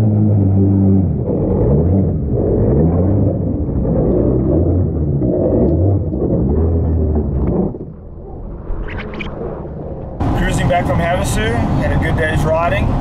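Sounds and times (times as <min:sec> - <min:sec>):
jet ski engine revving: 0:00.0 - 0:07.8.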